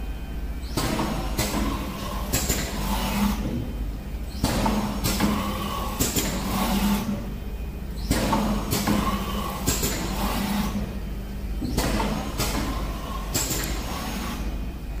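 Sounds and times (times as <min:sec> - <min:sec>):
low machine hum: 0:00.0 - 0:15.0
printing machine hissing: 0:00.6 - 0:15.0
machine sharp knocks: 0:00.7 - 0:03.7, 0:04.4 - 0:07.0, 0:08.0 - 0:10.9, 0:11.6 - 0:14.2.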